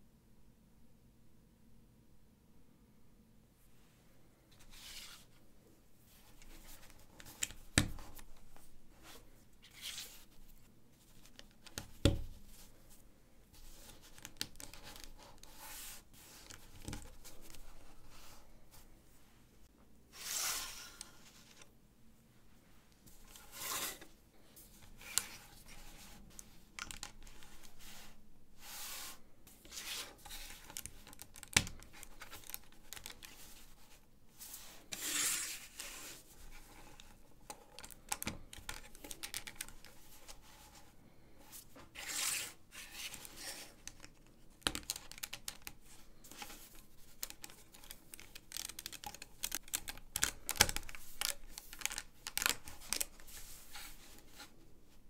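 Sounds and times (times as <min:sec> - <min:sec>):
plastic pieces clicking together: 0:47.2 - 0:53.1.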